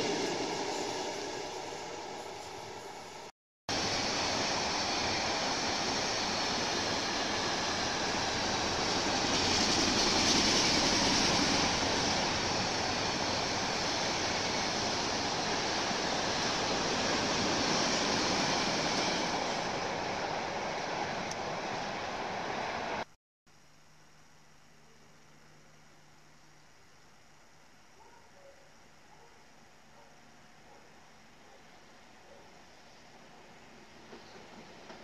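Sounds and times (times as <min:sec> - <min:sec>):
freight train wheels on rail: 0:00.0 - 0:23.1, 0:33.4 - 0:35.0.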